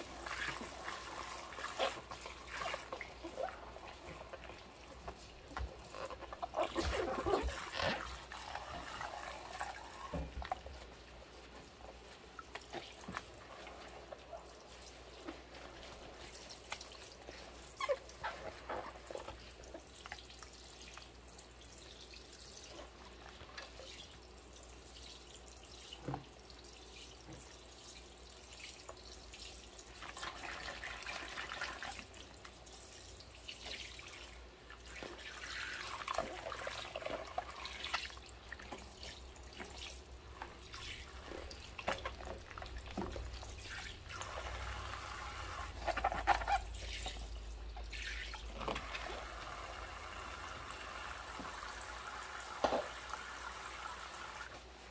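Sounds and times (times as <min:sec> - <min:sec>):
water splashing: 0:00.0 - 0:21.2, 0:29.3 - 0:54.9
water dripping and sloshing: 0:00.0 - 0:54.9.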